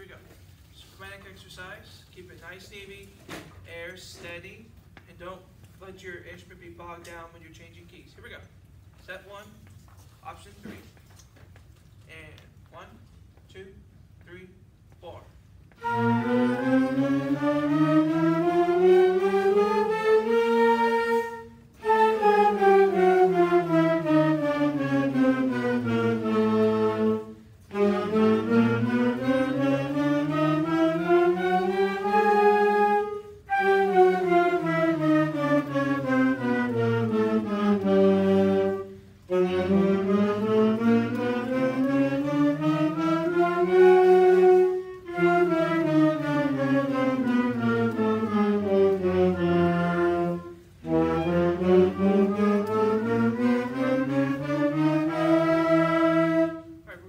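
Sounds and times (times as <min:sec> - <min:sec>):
wind band playing long tones: 0:15.8 - 0:57.0.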